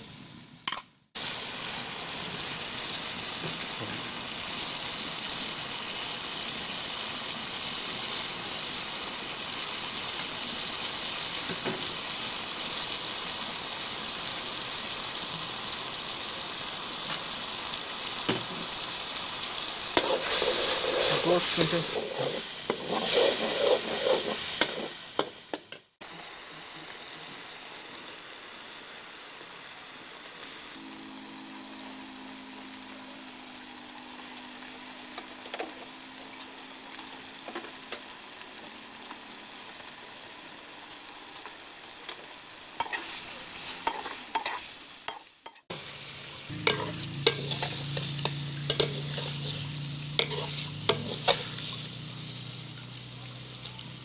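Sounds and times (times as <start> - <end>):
chicken sizzling in a pan: 0.0 - 54.0
metal ladle scraping a pan: 20.0 - 25.4, 46.6 - 51.8.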